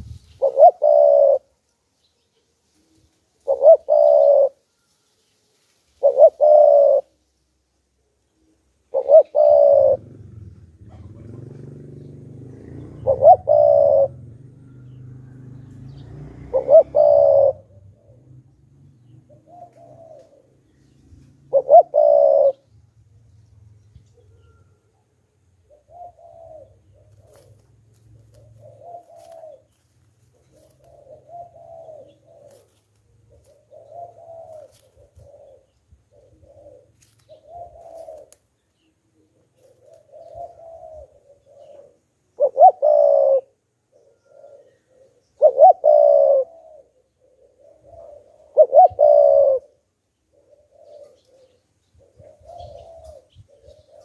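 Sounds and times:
dove cooing: 0:00.0 - 0:01.6, 0:02.8 - 0:04.8, 0:06.0 - 0:07.2, 0:08.3 - 0:22.8, 0:23.8 - 0:54.0.

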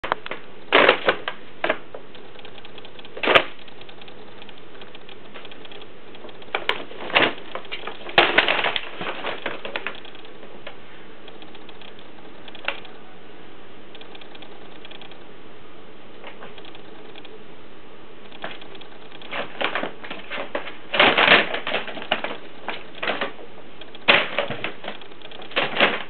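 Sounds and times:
paper bag crinkling and rustling: 0:19.3 - 0:26.0.

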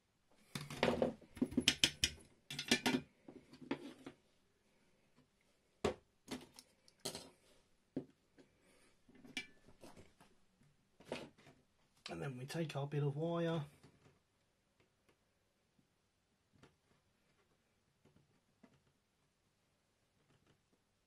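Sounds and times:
plastic parts and tools clicking: 0:00.5 - 0:03.1.

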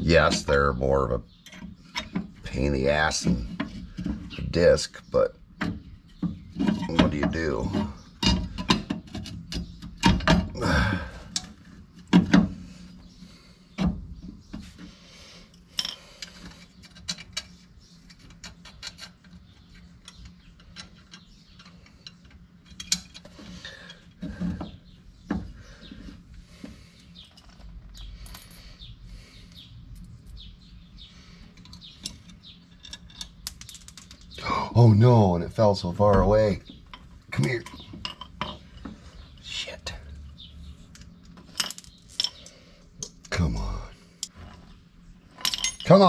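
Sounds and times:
faint steady hum: 0:00.0 - 0:46.0
metal brake parts clinking: 0:36.9 - 0:38.8, 0:45.3 - 0:46.0.

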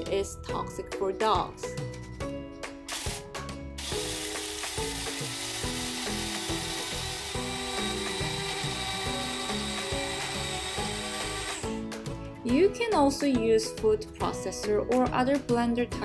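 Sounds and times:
soft background music: 0:00.0 - 0:16.0
coffee grinder grinding: 0:02.9 - 0:11.8.

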